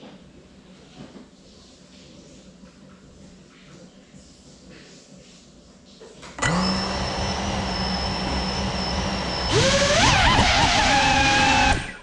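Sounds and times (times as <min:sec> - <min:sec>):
drone motors whining: 0:06.4 - 0:12.0.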